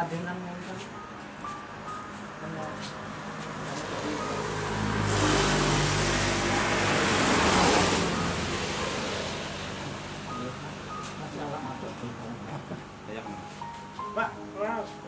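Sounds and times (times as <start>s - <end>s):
vehicle driving past: 1.8s - 13.1s.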